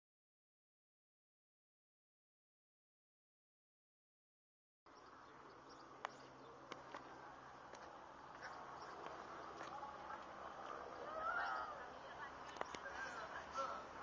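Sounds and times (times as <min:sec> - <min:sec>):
low steady hum: 0:04.9 - 0:14.0.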